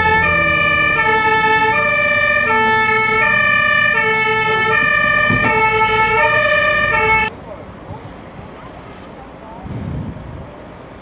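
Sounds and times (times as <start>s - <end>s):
two-tone fire engine siren: 0.0s - 7.3s
engine rumble: 0.0s - 11.0s.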